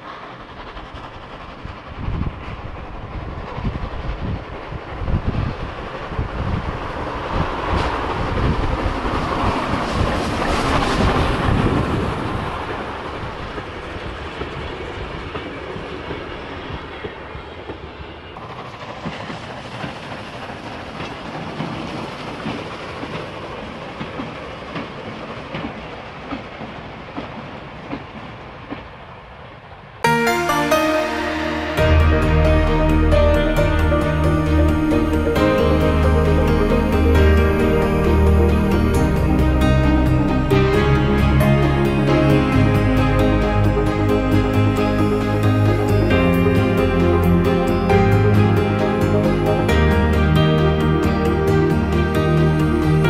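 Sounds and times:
steam train passing: 0.0 - 53.0.

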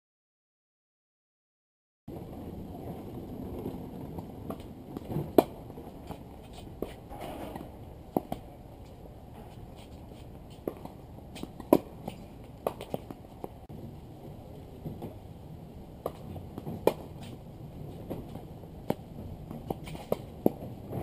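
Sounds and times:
steady background noise: 2.1 - 21.0
tennis ball struck with rackets: 10.5 - 13.5, 16.0 - 17.3, 18.1 - 20.7.

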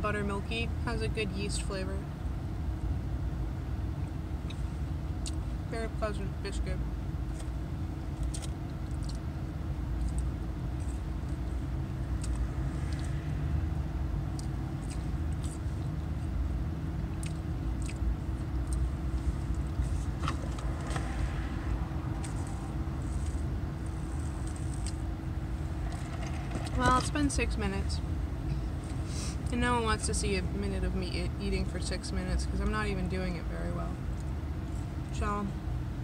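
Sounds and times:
car engine idling: 0.0 - 36.0
chewing mouth sounds: 8.1 - 9.3, 14.3 - 16.1, 17.0 - 20.2.

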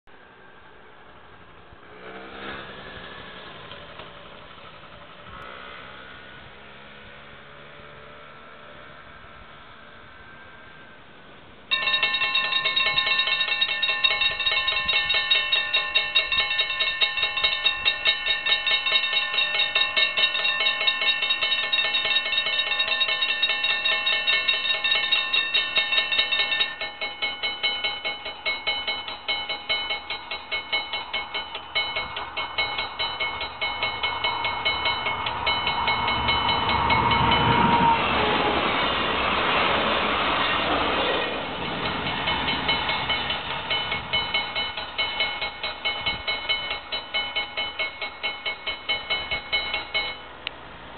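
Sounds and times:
car passing: 1.4 - 10.8, 31.6 - 44.5
level crossing warning bells: 11.7 - 39.1, 39.9 - 50.6.

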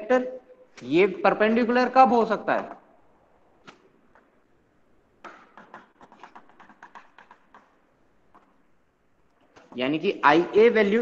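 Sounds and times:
chalk tapping on blackboard: 5.2 - 8.6.

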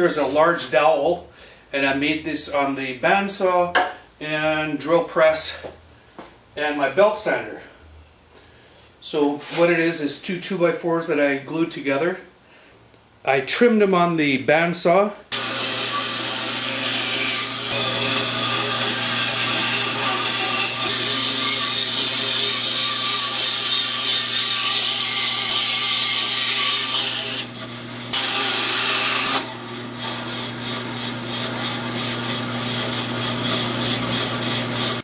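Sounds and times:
bandsaw motor hum: 15.3 - 35.0
saw blade rasping through wood: 15.3 - 35.0.

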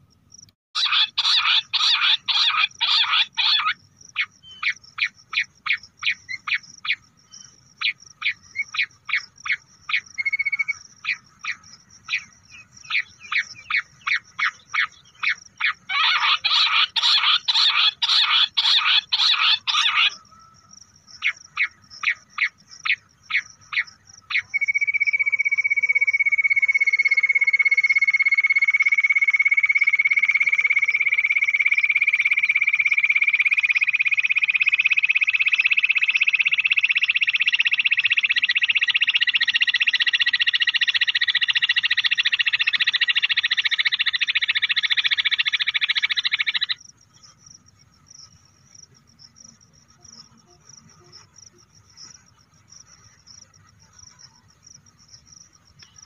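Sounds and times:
quail call through speaker: 0.8 - 7.0, 12.9 - 27.9.

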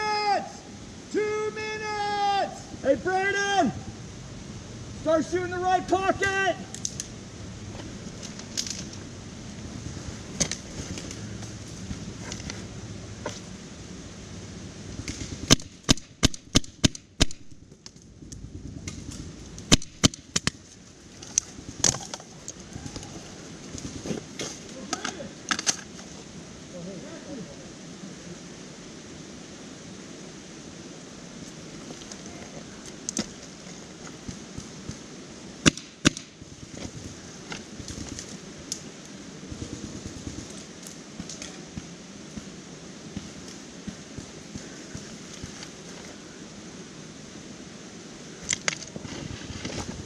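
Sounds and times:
paintball marker pops: 19.7 - 20.6, 35.6 - 36.3.

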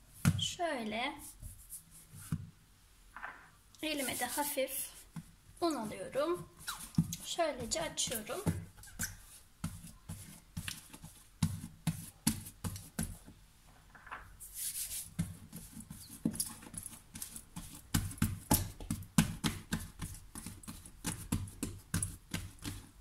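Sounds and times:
hands slapping bread dough: 6.5 - 13.3, 14.6 - 23.0.

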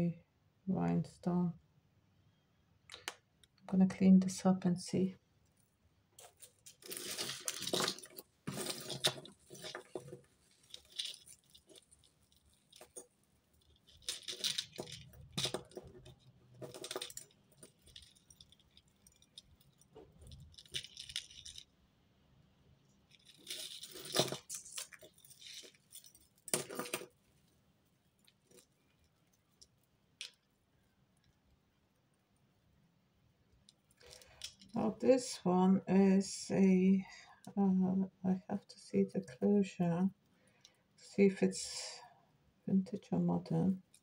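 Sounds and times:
metal chains jingling and clinking: 6.2 - 16.0, 16.6 - 21.6, 23.1 - 27.1.

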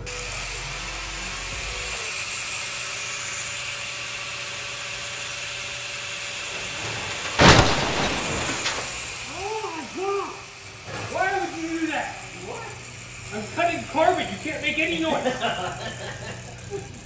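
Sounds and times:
angle grinder cutting: 0.0 - 17.0
sudden loud burst: 7.2 - 9.1.

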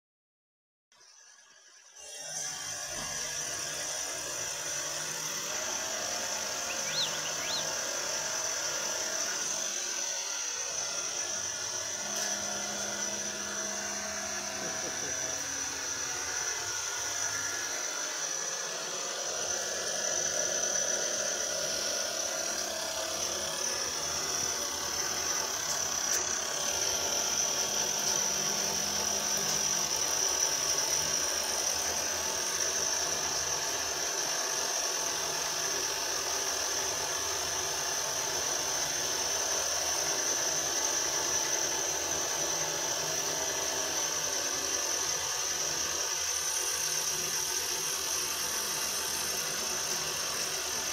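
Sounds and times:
milling machine cutting metal: 1.0 - 50.9
steady high whine: 1.2 - 50.9.

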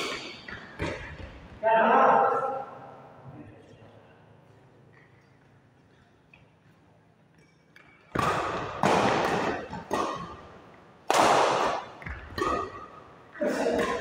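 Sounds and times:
badminton racket hitting shuttlecock: 0.0 - 1.2, 8.0 - 14.0.

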